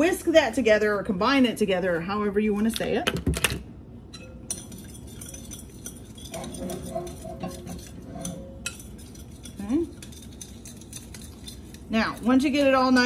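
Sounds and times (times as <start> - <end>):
whisk scraping glass bowl: 4.2 - 13.0.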